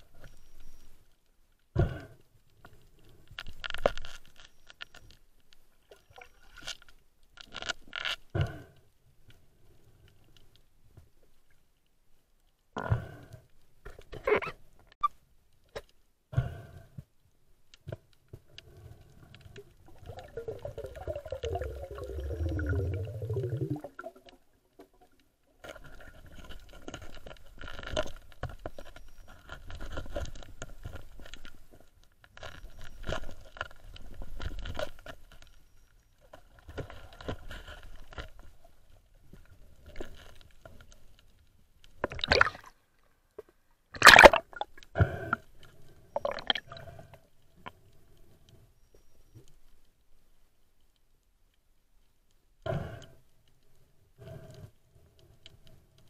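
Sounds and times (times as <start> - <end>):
underwater water movement: 18.0 - 49.7
underwater clicks: 18.6 - 31.6, 43.4 - 45.5, 46.1 - 47.8
bubbling: 19.3 - 26.7, 42.0 - 42.8, 44.0 - 44.9, 46.1 - 47.0
loud splashing: 44.0 - 44.6.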